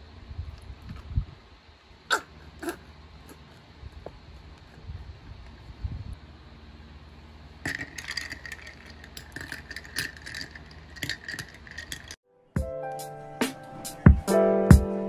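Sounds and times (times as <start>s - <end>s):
ice cubes clinking against glass: 7.6s - 12.2s.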